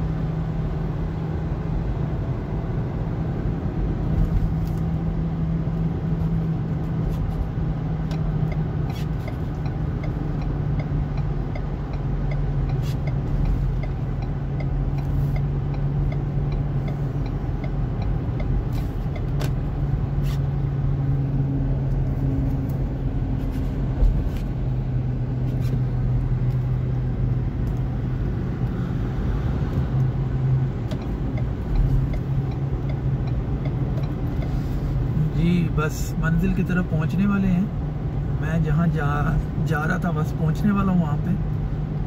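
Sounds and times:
low engine hum: 0:00.0 - 0:42.0
tyre and road noise: 0:00.0 - 0:42.0
light regular ticking: 0:05.7 - 0:23.3, 0:29.7 - 0:35.3.

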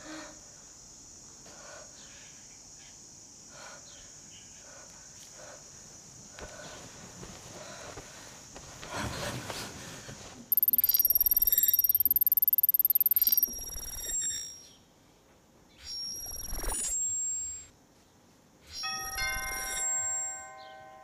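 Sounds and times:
rapidly pulsing electronic tone: 0:10.5 - 0:14.6, 0:15.9 - 0:17.7
short electronic blips: 0:10.5 - 0:14.6, 0:15.9 - 0:17.7.

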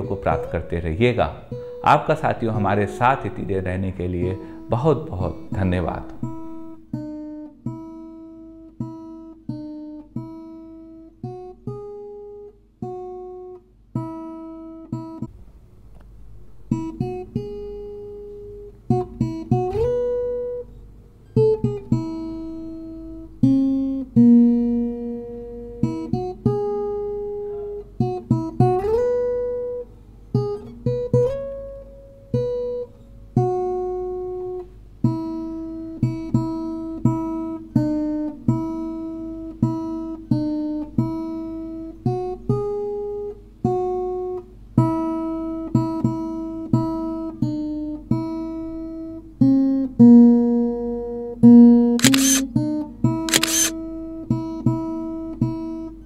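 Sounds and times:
plucked acoustic guitar: 0:00.0 - 0:12.1.

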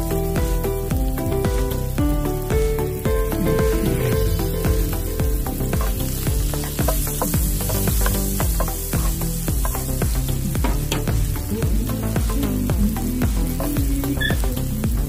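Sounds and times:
background music with beat: 0:00.0 - 0:15.0
food sizzling in hot oil: 0:00.0 - 0:15.0
spatula stirring in pan: 0:03.4 - 0:14.5.

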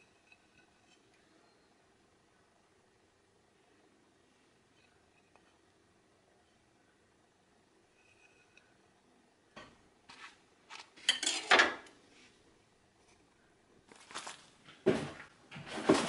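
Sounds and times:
egg carton rustling: 0:13.9 - 0:16.0.

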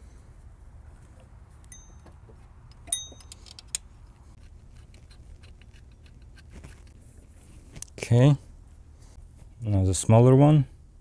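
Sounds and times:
metal bolt clinking: 0:01.7 - 0:03.8.

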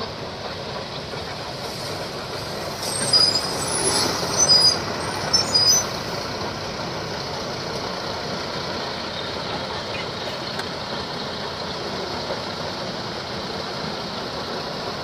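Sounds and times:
short high-pitched squeals: 0:02.8 - 0:06.0.

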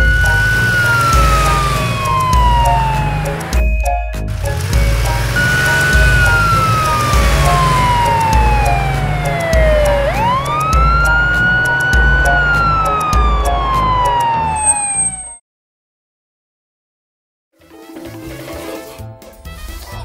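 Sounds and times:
police siren wailing: 0:00.0 - 0:03.6, 0:04.5 - 0:15.4
background music with steady beat: 0:00.0 - 0:14.6.

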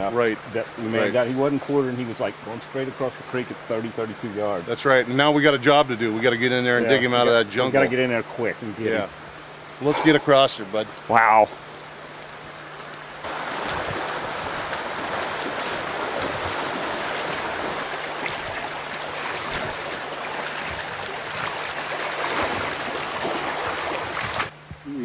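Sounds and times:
creek water rushing: 0:00.0 - 0:24.6.

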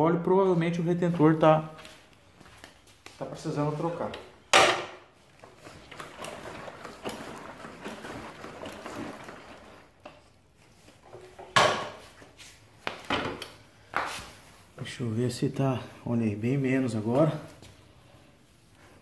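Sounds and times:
rubbing and rustling: 0:05.1 - 0:13.1.

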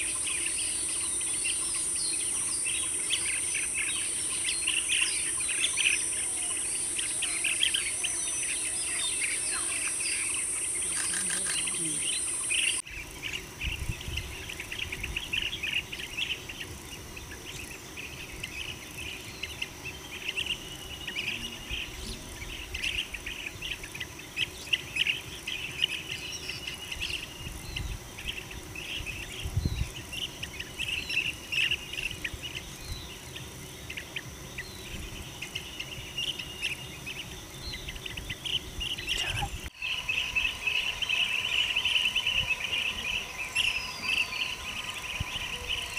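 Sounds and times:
bird chirps and calls: 0:00.0 - 0:12.9, 0:34.6 - 0:45.9
high insect drone: 0:00.0 - 0:45.9.

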